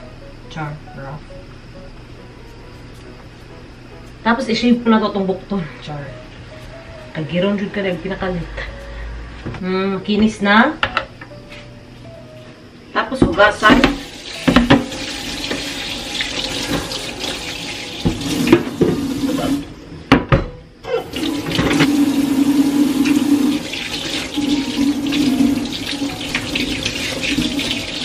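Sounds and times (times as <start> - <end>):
knocks in sink: 13.2 - 14.9
tap water running into sink: 13.6 - 19.6, 21.1 - 28.0.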